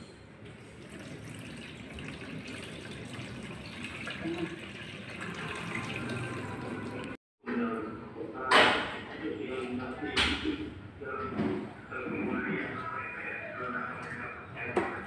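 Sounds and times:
liquid trickling and splashing: 0.6 - 7.2.

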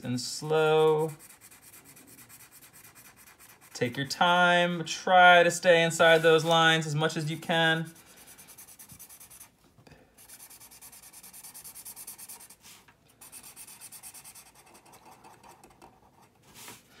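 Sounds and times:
marker scratching on paper: 0.8 - 3.8, 7.9 - 9.5, 10.2 - 16.8.

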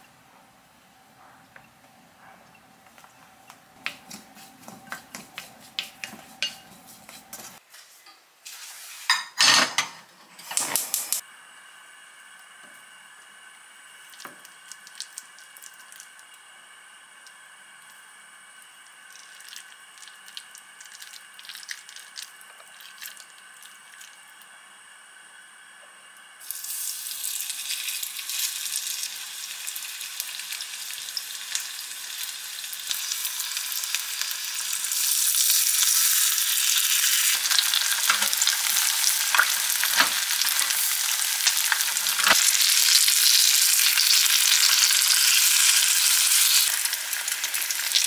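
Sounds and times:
hands mixing wet vegetables: 2.2 - 7.6.

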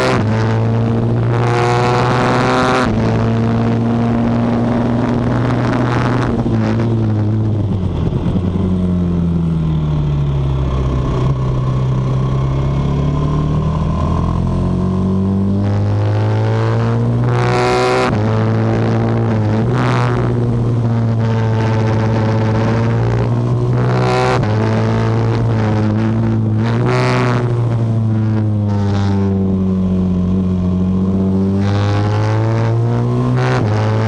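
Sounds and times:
motorcycle engine at high revs: 0.0 - 34.0
wind rush: 1.0 - 14.4.

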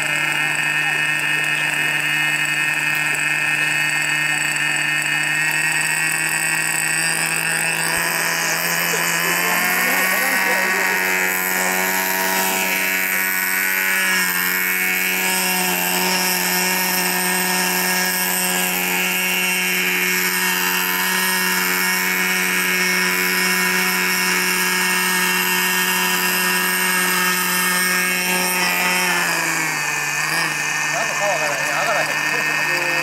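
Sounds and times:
model engine high buzzing: 0.0 - 33.0
rotors whirring: 0.0 - 33.0.

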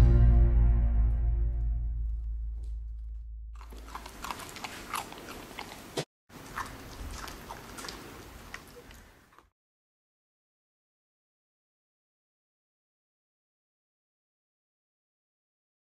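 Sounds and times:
puppy chewing carrot crunches: 3.6 - 9.5.

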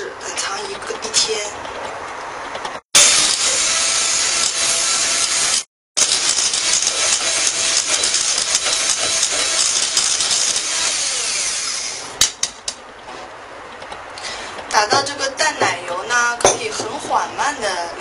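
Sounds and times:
hand mixer beaters whirring: 3.3 - 12.1.

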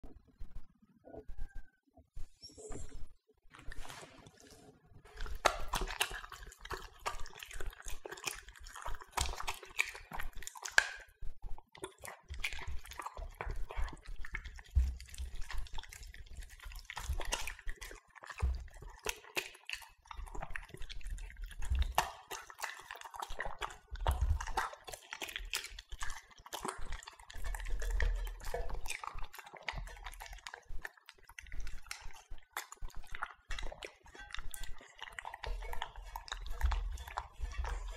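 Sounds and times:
dogs chewing and smacking: 3.5 - 37.9
muzzles bumping metal bowls: 34.1 - 37.9.

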